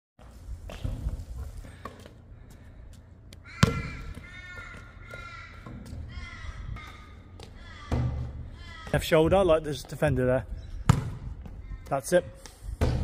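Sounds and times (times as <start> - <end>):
bird calling: 3.4 - 9.2
basketball bouncing: 3.6 - 6.1, 6.7 - 10.2, 10.8 - 11.6.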